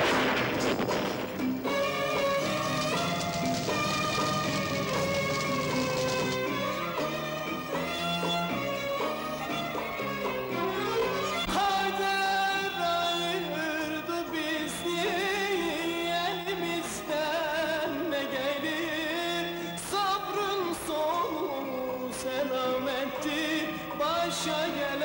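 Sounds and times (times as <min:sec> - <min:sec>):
instrumental accompaniment: 0:00.2 - 0:16.7
man singing with vibrato: 0:11.5 - 0:25.0.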